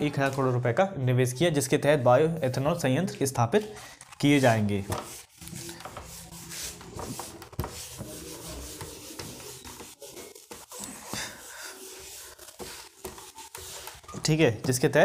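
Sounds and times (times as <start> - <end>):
pen scratching on paper: 4.4 - 14.3.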